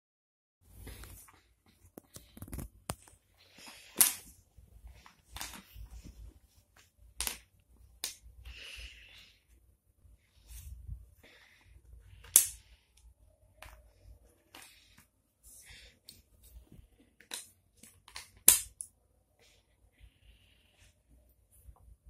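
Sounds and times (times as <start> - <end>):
soft rustling: 0.7 - 7.1
wooden puzzle pieces clacking: 7.2 - 8.2, 12.2 - 12.6, 17.2 - 18.9.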